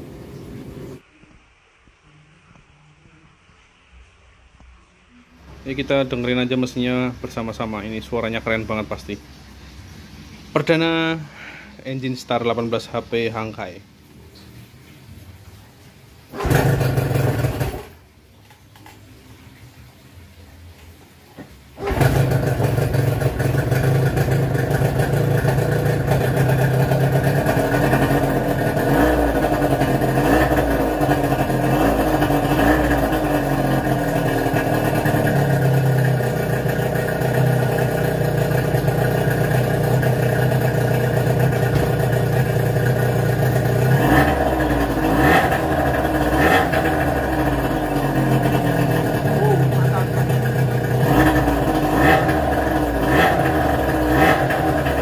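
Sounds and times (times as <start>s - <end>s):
outboard motor running: 16.3s - 18.0s, 21.8s - 55.0s.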